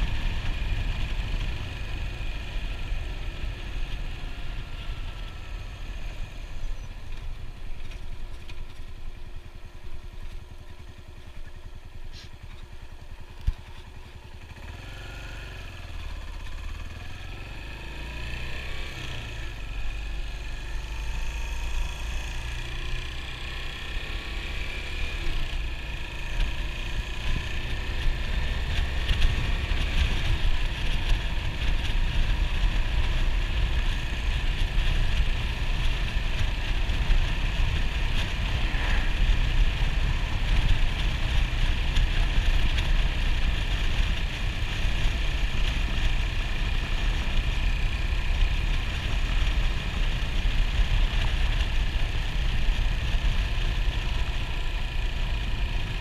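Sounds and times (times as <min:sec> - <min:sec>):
motorcycle engine running: 0:00.0 - 0:56.0
wind and road noise: 0:00.0 - 0:56.0.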